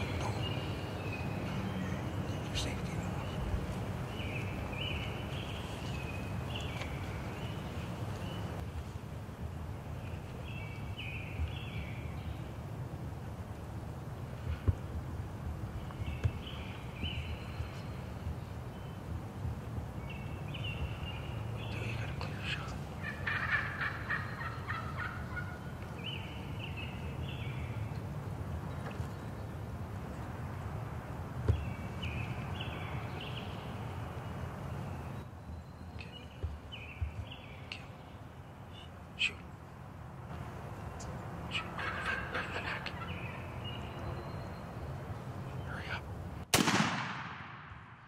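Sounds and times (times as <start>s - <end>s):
turkey gobbling: 23.0s - 25.6s, 41.6s - 43.1s
shotgun blast with echo: 46.5s - 48.0s.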